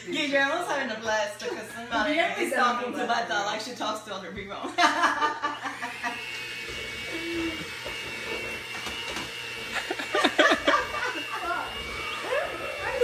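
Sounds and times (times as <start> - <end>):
electric hand mixer whirring: 4.6 - 13.0.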